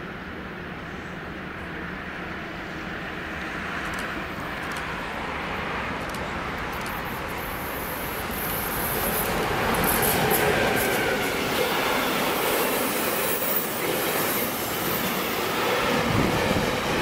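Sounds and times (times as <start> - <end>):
freight train rumble: 0.0 - 17.0
wheels hissing on rails: 6.1 - 17.0.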